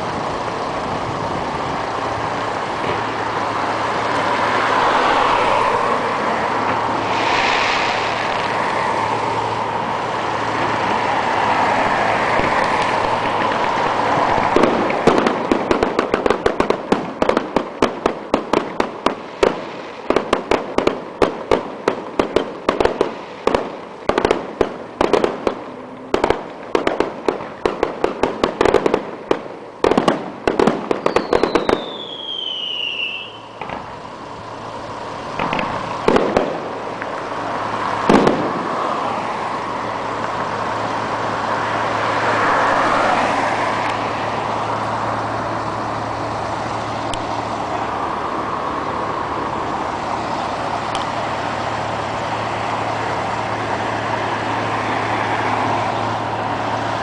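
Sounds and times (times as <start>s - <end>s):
fireworks bangs: 0.0s - 57.0s
road traffic: 0.0s - 57.0s
vehicle passing: 0.2s - 17.4s, 29.8s - 57.0s
falling firework whistle: 6.6s - 9.6s, 29.8s - 33.9s.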